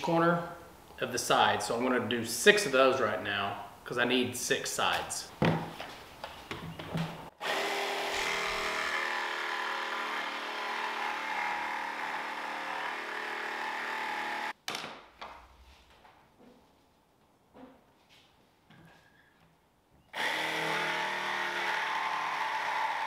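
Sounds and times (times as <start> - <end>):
power drill boring into wood: 7.4 - 14.5, 20.2 - 23.0.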